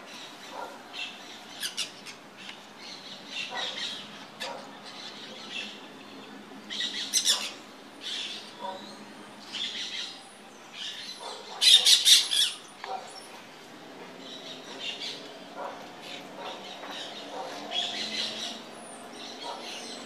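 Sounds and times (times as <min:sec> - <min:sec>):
parakeets squawking: 0:00.4 - 0:02.2, 0:06.8 - 0:08.9, 0:10.8 - 0:13.4, 0:14.3 - 0:20.0.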